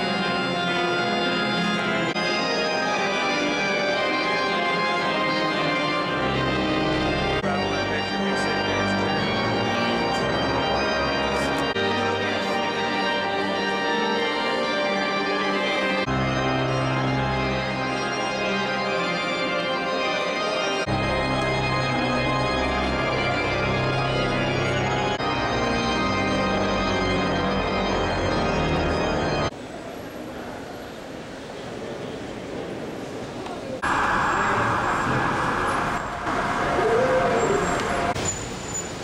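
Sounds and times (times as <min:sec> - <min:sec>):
church organ chords: 0:00.0 - 0:29.5
faint background noise: 0:29.5 - 0:39.0.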